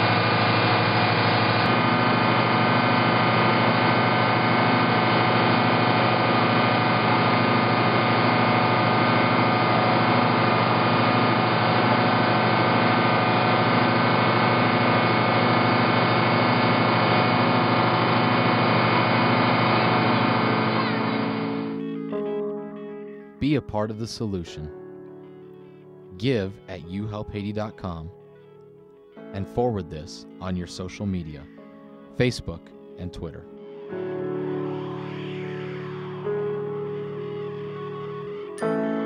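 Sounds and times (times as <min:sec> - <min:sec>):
diesel engine running: 0:00.0 - 0:21.9.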